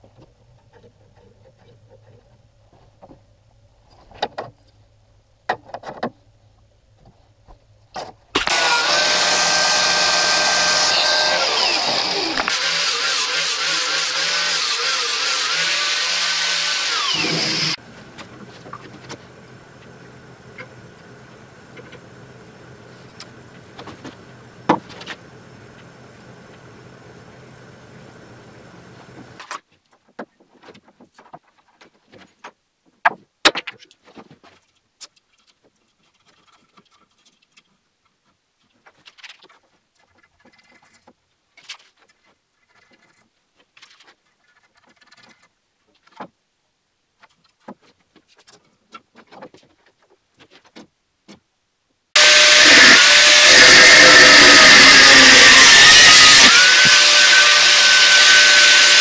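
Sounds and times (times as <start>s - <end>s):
angle grinder cutting metal: 8.4s - 17.8s, 52.2s - 59.0s.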